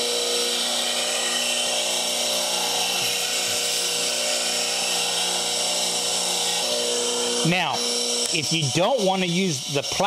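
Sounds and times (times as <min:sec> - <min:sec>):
grinder motor hum: 0:00.0 - 0:10.0
grinding hiss: 0:00.0 - 0:10.0.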